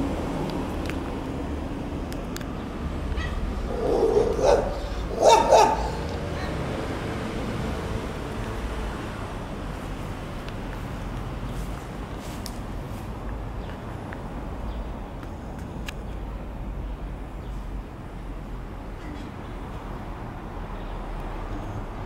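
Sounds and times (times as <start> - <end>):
low outdoor rumble: 0.0 - 12.2
dog barking: 3.2 - 6.6.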